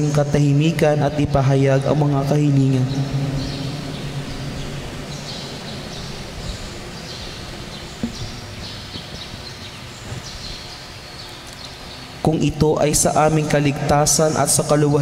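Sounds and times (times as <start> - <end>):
birds chirping: 0.0 - 15.0
soft knocks: 8.0 - 9.3.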